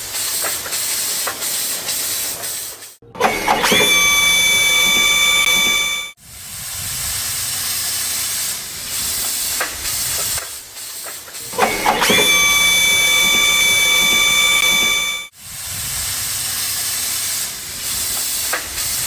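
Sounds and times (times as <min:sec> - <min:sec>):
steam hissing: 0:00.0 - 0:19.0
steam locomotive whistle: 0:03.1 - 0:09.6, 0:11.4 - 0:19.0.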